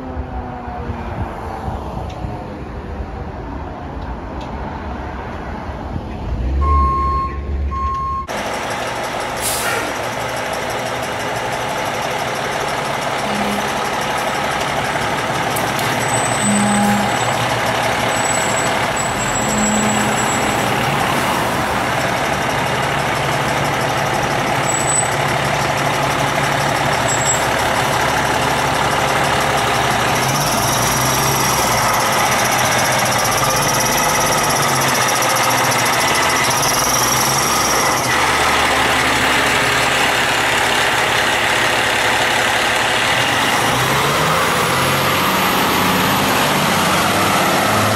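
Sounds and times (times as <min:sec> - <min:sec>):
fire truck diesel engine: 0:05.9 - 0:47.9
air brakes: 0:09.4 - 0:10.0
siren tone: 0:30.4 - 0:38.1.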